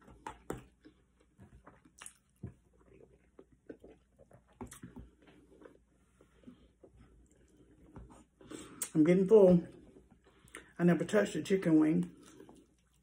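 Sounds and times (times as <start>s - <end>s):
chewing food with mouth closed: 0.0s - 7.8s, 12.0s - 13.0s.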